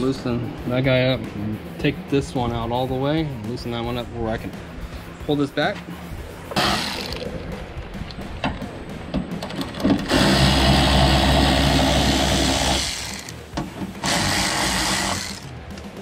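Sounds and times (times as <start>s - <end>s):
electric ratchet running: 6.6s - 7.2s, 10.0s - 13.4s, 14.0s - 15.5s.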